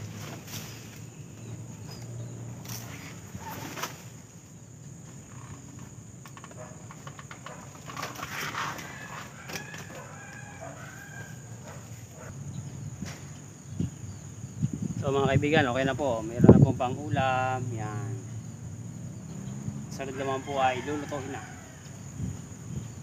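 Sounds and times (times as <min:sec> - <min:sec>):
banana leaves rustling and snapping: 0:00.0 - 0:04.3, 0:05.6 - 0:11.2.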